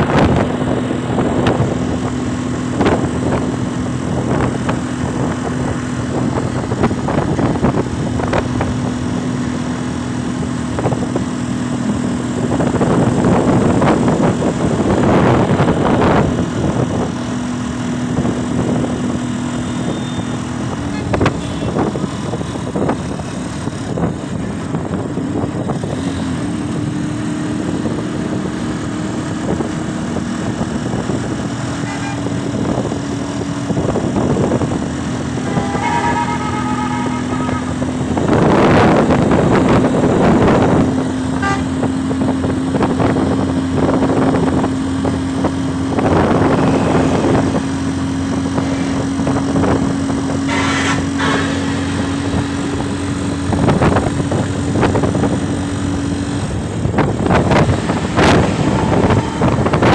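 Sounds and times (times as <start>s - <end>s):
engine drone: 0.0s - 59.9s
traffic and tyre noise: 0.0s - 59.9s
vehicle horn beeping: 19.7s - 21.9s, 31.8s - 32.3s, 35.4s - 37.9s, 41.4s - 41.8s, 50.4s - 51.8s, 58.2s - 59.9s.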